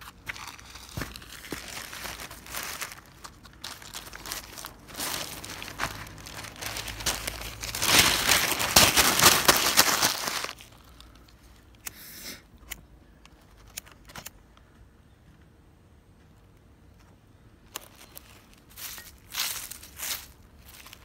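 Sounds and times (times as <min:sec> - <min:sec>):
newspaper crumpling: 0:00.0 - 0:11.3
faint paper crinkles: 0:00.0 - 0:11.8, 0:17.7 - 0:21.0.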